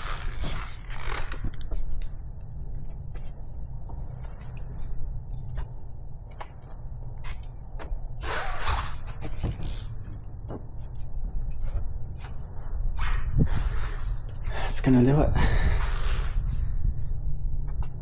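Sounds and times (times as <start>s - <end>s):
low rumble: 8.9s - 18.0s.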